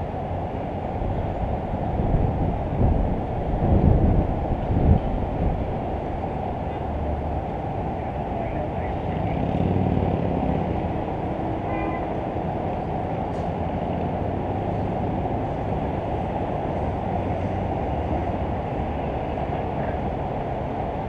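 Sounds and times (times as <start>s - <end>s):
distant city traffic rumble: 0.0s - 21.0s
vehicle horn toot: 11.6s - 12.1s.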